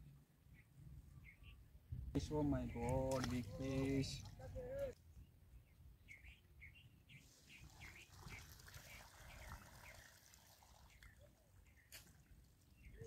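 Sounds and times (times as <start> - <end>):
water sloshing in a plastic tub: 2.8 - 5.0.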